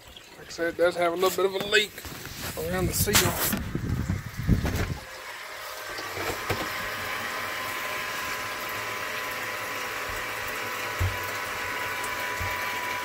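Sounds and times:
electric pump humming: 0.5s - 13.0s
rushing water: 7.2s - 13.0s.

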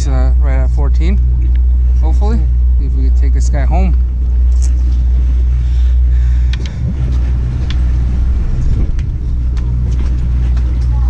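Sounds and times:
boat engine low drone: 0.0s - 11.0s.

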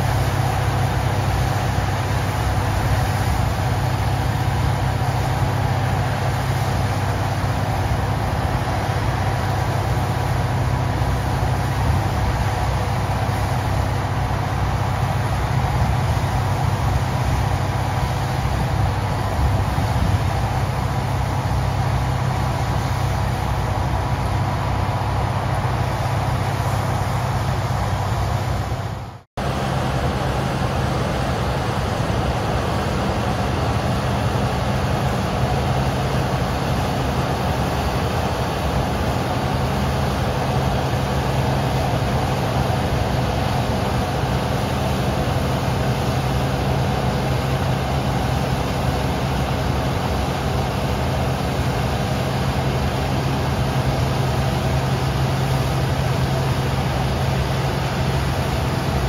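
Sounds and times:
combine harvester engine drone: 0.0s - 59.0s.

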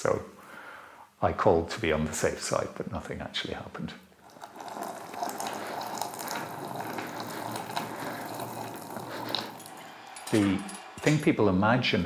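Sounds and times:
molten metal pouring: 4.1s - 11.3s.

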